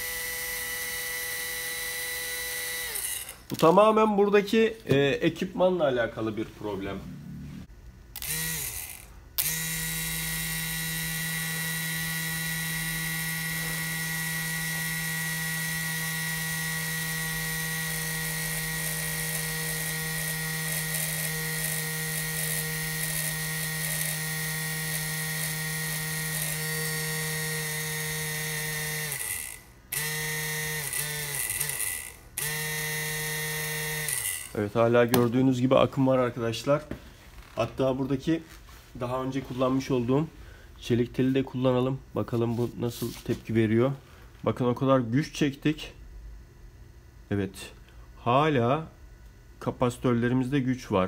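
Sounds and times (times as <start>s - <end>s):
small electric motor whining: 0.0s - 3.6s, 8.2s - 34.6s.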